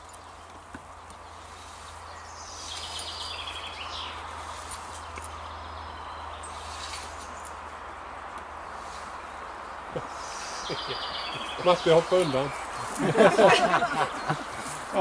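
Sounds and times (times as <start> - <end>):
songbird trilling: 9.9 - 13.0.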